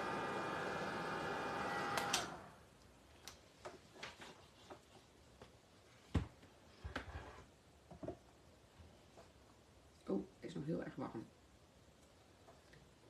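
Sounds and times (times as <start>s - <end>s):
heat tool blowing whir: 0.0s - 2.5s.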